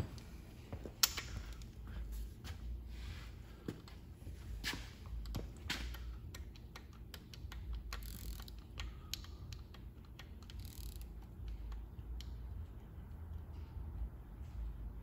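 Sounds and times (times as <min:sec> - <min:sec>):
socket ratchet clicking: 0:05.2 - 0:12.6.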